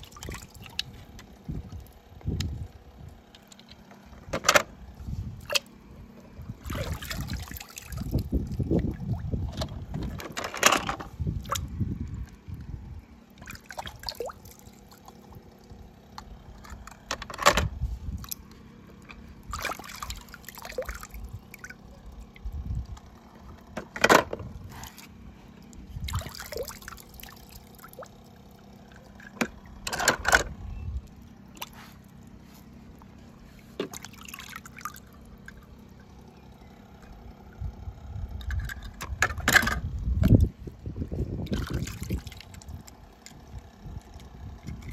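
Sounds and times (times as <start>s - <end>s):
water trickling and dripping: 13.3s - 15.7s, 26.0s - 29.2s
toy cars splashing into water: 19.5s - 21.8s, 26.0s - 28.3s.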